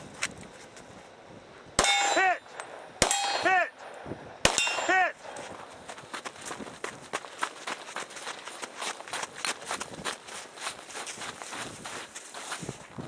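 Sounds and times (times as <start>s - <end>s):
pistol shots: 1.8s - 5.0s
steel target clanging: 1.8s - 5.1s.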